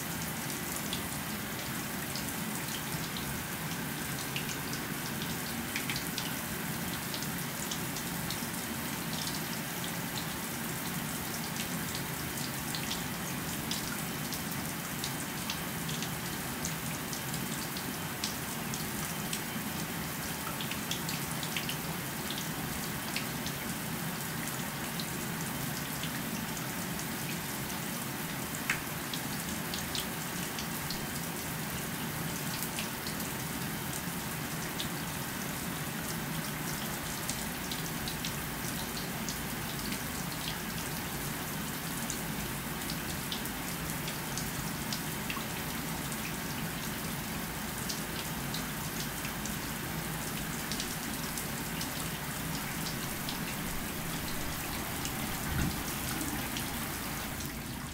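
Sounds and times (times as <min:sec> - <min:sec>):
water drips: 0:47.8 - 0:57.9
shower water spraying: 0:52.6 - 0:57.9.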